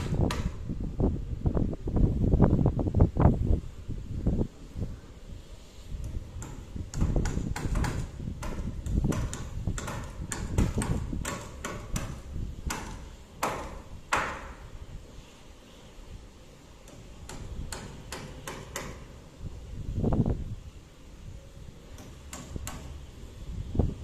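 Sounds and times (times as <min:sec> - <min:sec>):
hammers striking nails: 0:00.1 - 0:00.6, 0:06.0 - 0:14.6, 0:16.8 - 0:19.2, 0:21.9 - 0:23.0.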